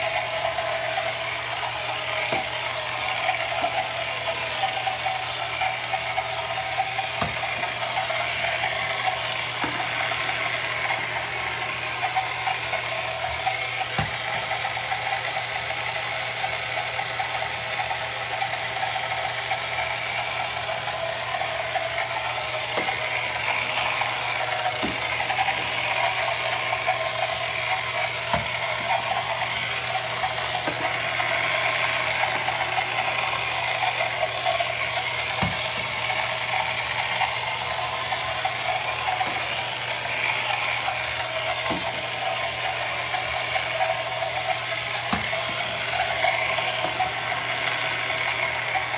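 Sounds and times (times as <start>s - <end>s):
toy motor whirring buzz: 0.0s - 48.9s.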